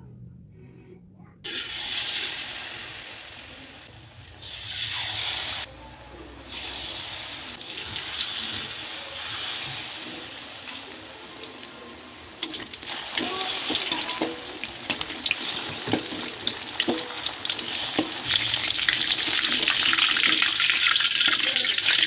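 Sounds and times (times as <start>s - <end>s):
tofu sizzling in hot oil: 6.4s - 22.0s.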